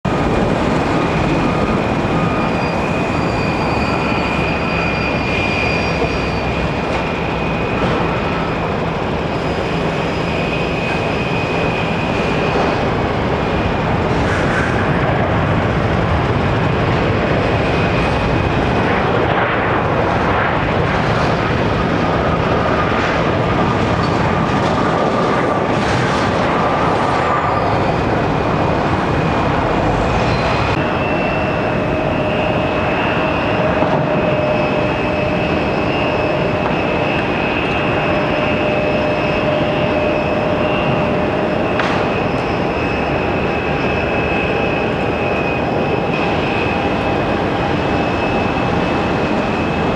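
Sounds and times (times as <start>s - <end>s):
jet engine noise: 0.0s - 49.9s
high whining tones: 26.6s - 49.9s.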